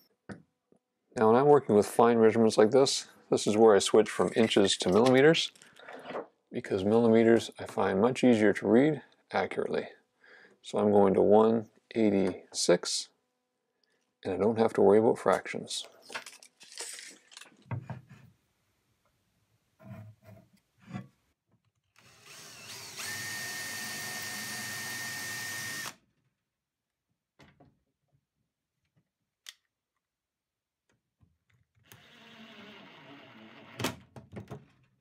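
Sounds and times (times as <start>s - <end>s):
cordless drill whining: 22.0s - 26.0s.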